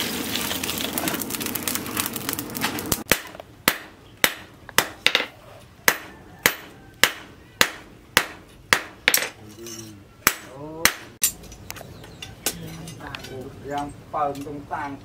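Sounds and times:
charcoal clattering onto fire: 0.0 - 3.8
hammer striking steel on anvil: 3.1 - 11.6.

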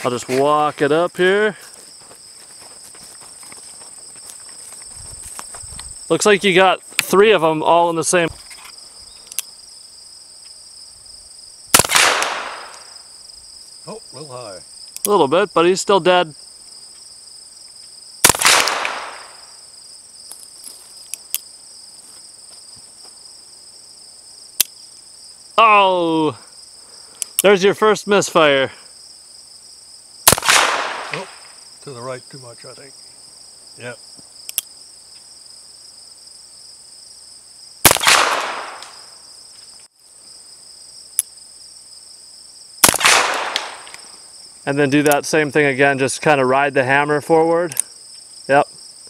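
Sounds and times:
insects calling: 0.0 - 49.0
revolver gunshot: 11.8 - 12.9, 18.2 - 19.5, 30.3 - 31.5, 37.8 - 39.0, 42.8 - 43.9
sharp click: 14.9 - 15.2, 24.6 - 24.8, 34.4 - 34.7.

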